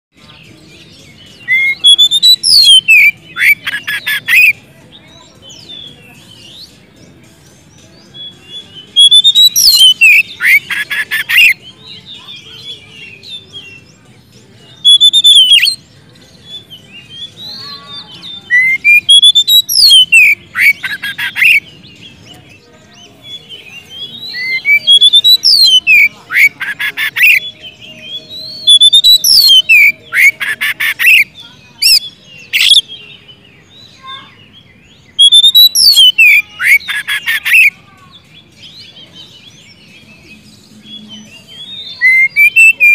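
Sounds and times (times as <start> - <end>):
bird whistling song: 1.3 - 4.6, 8.0 - 13.9, 14.7 - 15.8, 16.4 - 22.0, 23.0 - 37.8, 38.8 - 42.9
bird harsh rattling chatter: 20.5 - 21.6.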